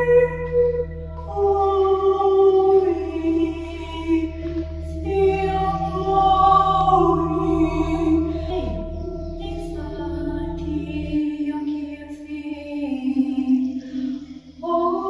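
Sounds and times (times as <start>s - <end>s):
steady drone: 0.0s - 12.6s
woman singing wordless held notes: 0.0s - 15.0s.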